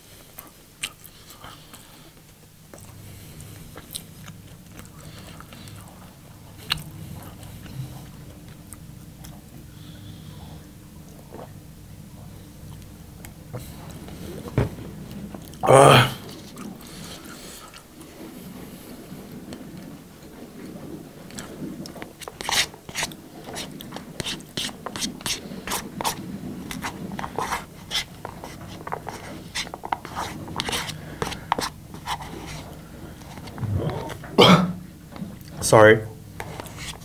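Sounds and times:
chewing: 0:00.3 - 0:11.6, 0:12.6 - 0:34.4
spoon scraping a bowl: 0:22.2 - 0:34.2, 0:36.4 - 0:37.0
throat sound: 0:33.5 - 0:34.8.

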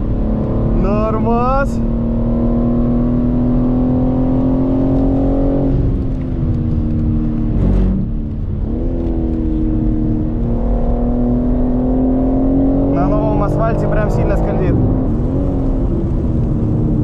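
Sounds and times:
car engine revving from cabin: 0:01.8 - 0:05.9.

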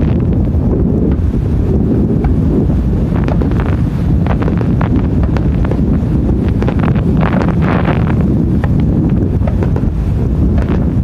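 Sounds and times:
wind rumbling on microphone: 0:00.0 - 0:11.0
fireworks pops and crackle: 0:03.1 - 0:05.8, 0:06.4 - 0:11.0.

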